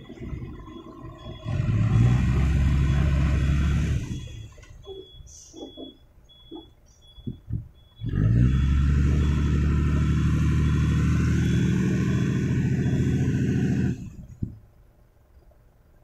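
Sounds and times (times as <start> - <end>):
diesel engine revving hard: 0.0 - 4.5, 8.0 - 14.3.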